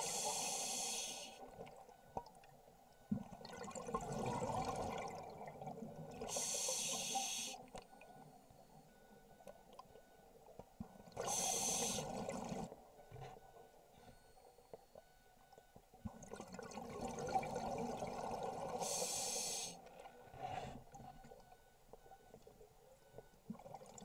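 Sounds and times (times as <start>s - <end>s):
scuba regulator breathing hiss: 0.0s - 1.4s, 6.3s - 7.6s, 11.3s - 12.2s, 18.8s - 19.8s
exhaled bubbles rushing: 3.4s - 5.7s.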